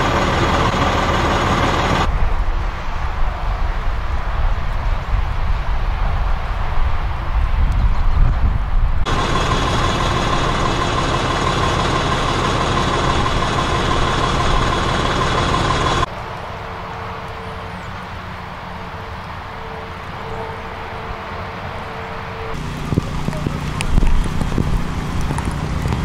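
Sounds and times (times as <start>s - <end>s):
engine idling with whine: 0.0s - 2.1s, 9.1s - 26.0s
outdoor ambience: 0.0s - 26.0s.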